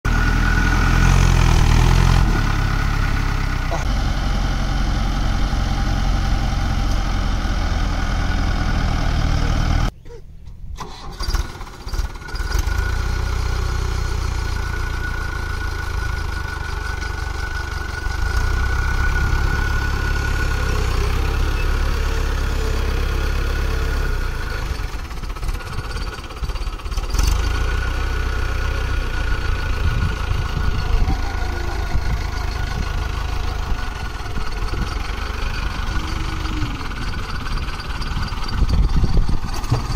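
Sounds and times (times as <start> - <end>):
tractor diesel engine running: 0.1 - 10.0, 10.7 - 39.9.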